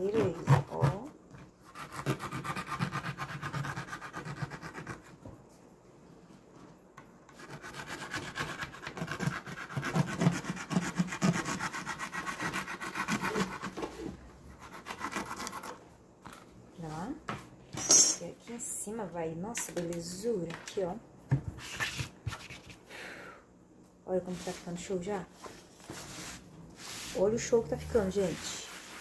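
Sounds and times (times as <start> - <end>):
utility knife sawing through fabric: 1.7 - 5.0, 7.4 - 13.8.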